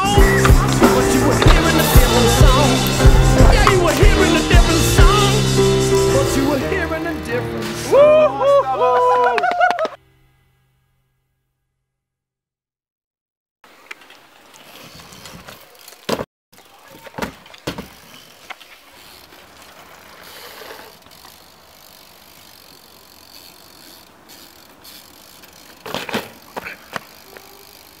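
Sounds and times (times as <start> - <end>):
bike frame and chain rattling: 14.6 - 28.0
bike landing impacts: 14.8 - 28.0.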